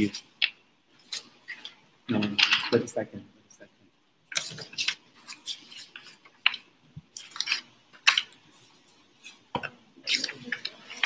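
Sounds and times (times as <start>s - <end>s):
objects clicking on desk: 1.6s - 2.8s
scratchy rustles: 4.4s - 11.0s.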